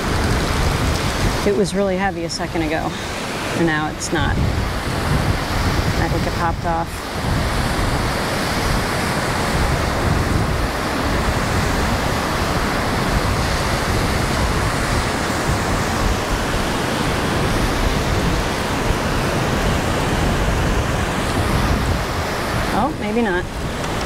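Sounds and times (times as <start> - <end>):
ocean surf breaking: 0.0 - 24.0
wind on microphone: 0.0 - 24.0.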